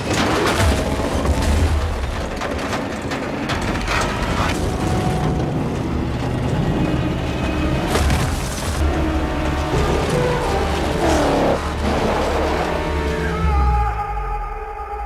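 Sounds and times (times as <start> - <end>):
clattering: 0.0 - 8.8.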